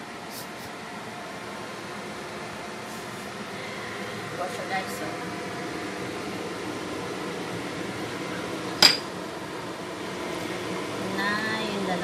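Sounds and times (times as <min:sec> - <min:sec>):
steady background hum: 0:00.0 - 0:12.0
metallic clink against pot: 0:08.8 - 0:09.1.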